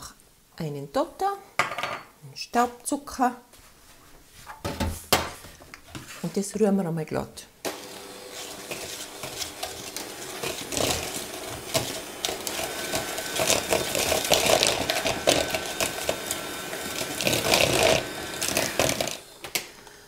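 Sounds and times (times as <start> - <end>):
electric hand mixer running: 7.6 - 19.5.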